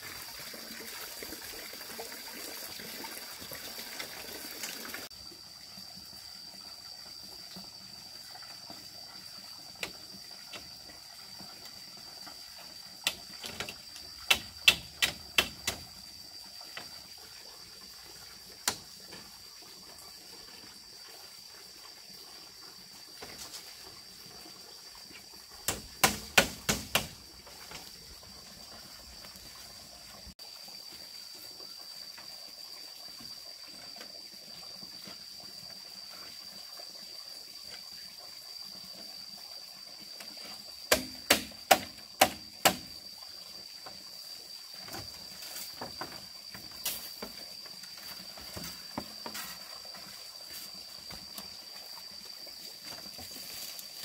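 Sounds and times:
sharp knocks: 25.7 - 27.2.

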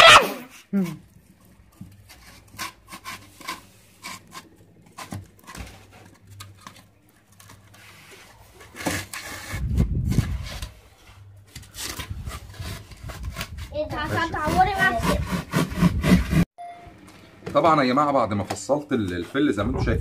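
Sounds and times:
foam sheets tapping and scraping: 0.8 - 15.4
foam rubbing and bumping: 1.6 - 6.8, 7.5 - 16.5.

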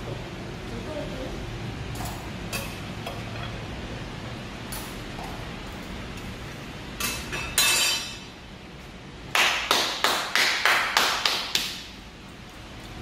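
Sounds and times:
person clapping hands: 9.3 - 11.8.

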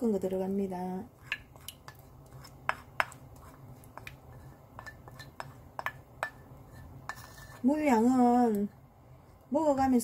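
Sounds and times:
spoon scraping ceramic bowl: 1.2 - 7.9.

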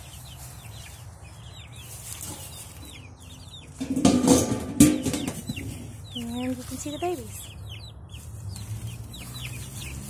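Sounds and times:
chicks peeping: 0.0 - 10.0
metal lid clattering: 3.8 - 5.6.

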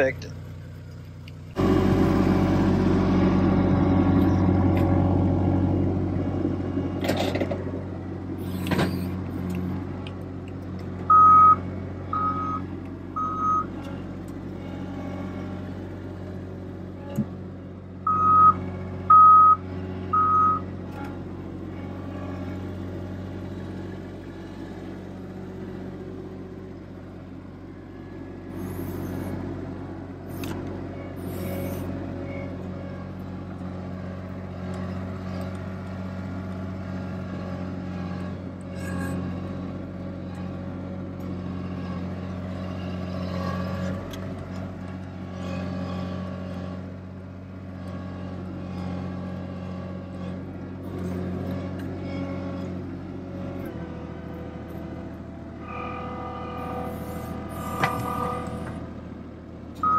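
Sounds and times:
loader diesel engine running: 0.0 - 59.9
backup alarm beeping: 11.1 - 11.6, 18.1 - 19.6.

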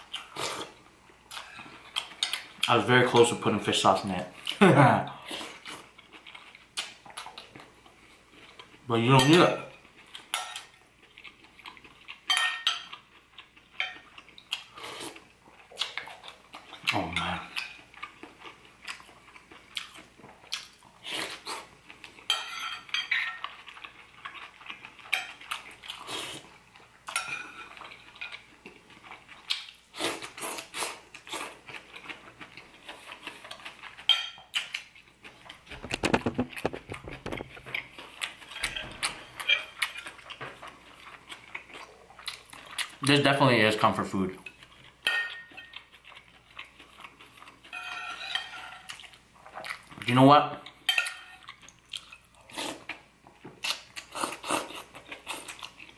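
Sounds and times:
eating and chewing: 0.0 - 55.9.

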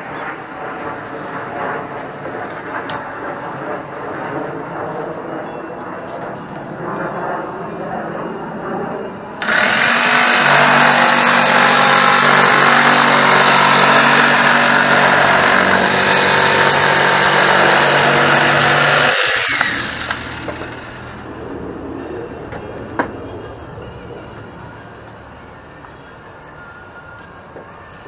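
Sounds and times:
electric jigsaw cutting plywood: 9.4 - 21.2.

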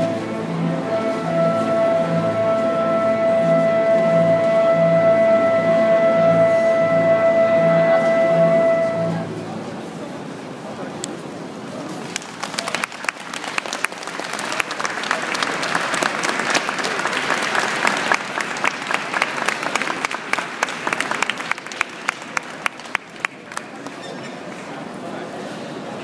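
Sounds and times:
crowd applauding: 12.0 - 24.8.

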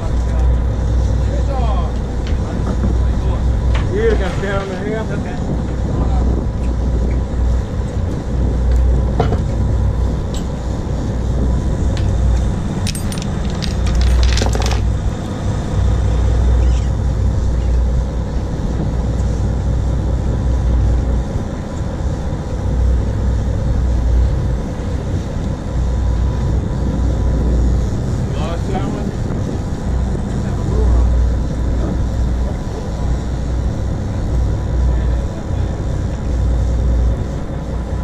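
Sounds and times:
boat engine rumble: 0.0 - 38.0
wind on microphone: 0.0 - 38.0
metallic clicks and clinks: 12.9 - 14.8.

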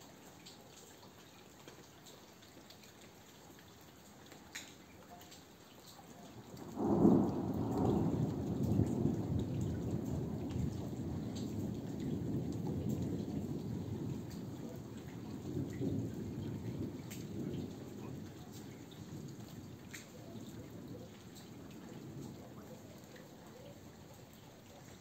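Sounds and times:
raindrops ticking: 0.0 - 25.0
thunder clap and rumble: 6.6 - 22.6.

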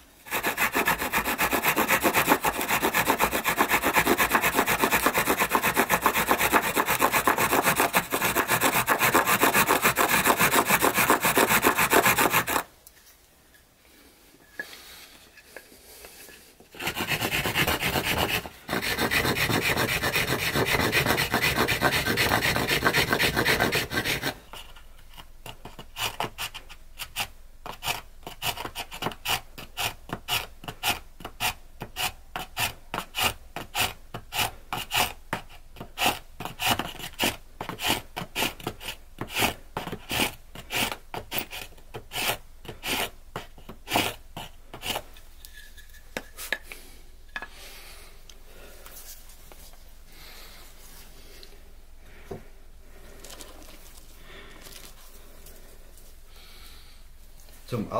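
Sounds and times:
stone knife scraping wood: 0.3 - 12.7, 15.4 - 47.6.

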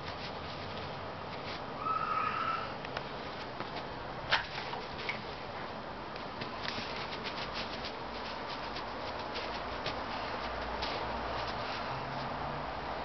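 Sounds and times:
paws scuffing on dry grass: 6.8 - 11.9.

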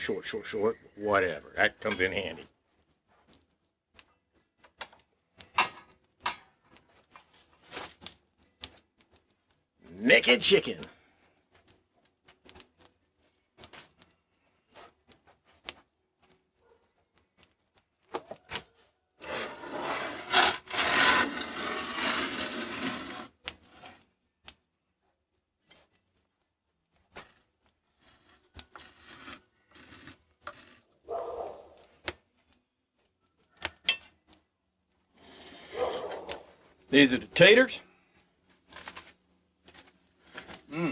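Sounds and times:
metal pans clicking and knocking: 5.4 - 6.5, 33.8 - 34.2
loud pan scrape: 19.2 - 23.9, 35.2 - 36.1.

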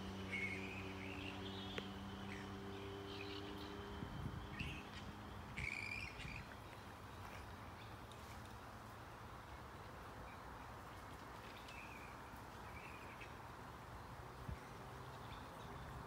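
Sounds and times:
steady low hum: 0.0 - 10.1
flying foxes calling: 0.1 - 8.0.

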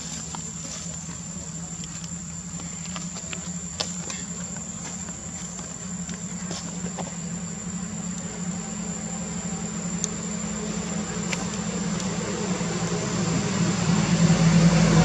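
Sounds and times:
high-pitched insect drone: 0.0 - 15.0
low steady hum: 0.0 - 15.0
faint clicks: 10.0 - 10.2.

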